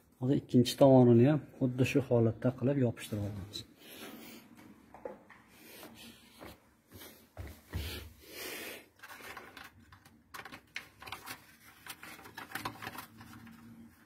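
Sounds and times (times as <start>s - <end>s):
paper crinkling and rustling: 8.9s - 14.0s.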